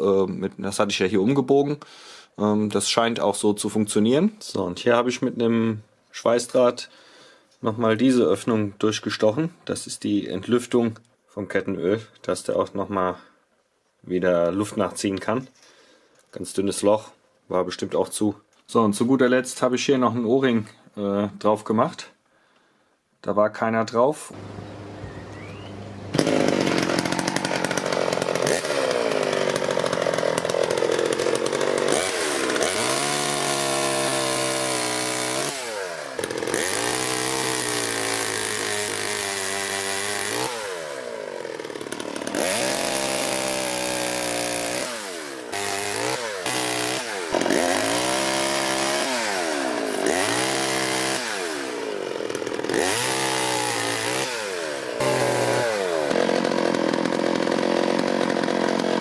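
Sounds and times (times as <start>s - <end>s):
chainsaw cutting branches: 24.4s - 59.0s.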